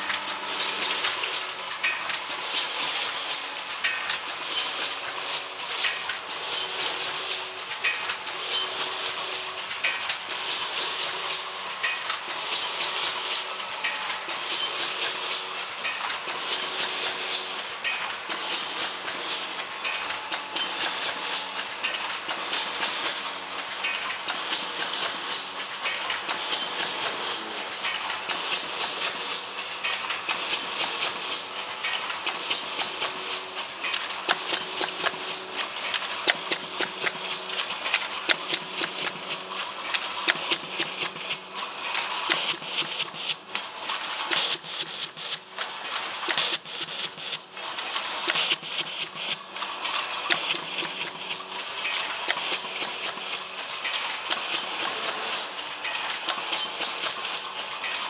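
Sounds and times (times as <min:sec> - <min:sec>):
packaging machine clattering: 0:23.9 - 0:58.0.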